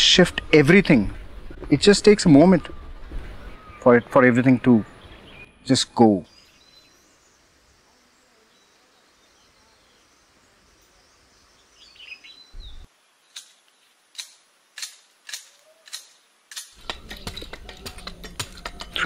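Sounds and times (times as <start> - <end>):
faint room hiss: 3.8 - 16.8
sharp short clicks: 13.3 - 19.0.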